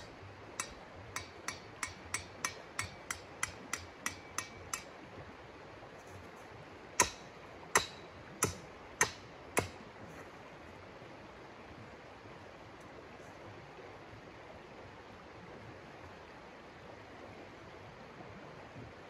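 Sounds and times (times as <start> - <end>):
hammer strikes with metallic ring: 0.0 - 4.9, 7.0 - 9.8.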